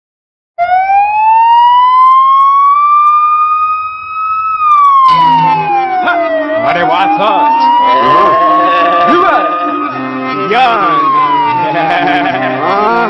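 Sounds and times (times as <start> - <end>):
siren wail: 0.6 - 13.0
song music: 4.9 - 13.0.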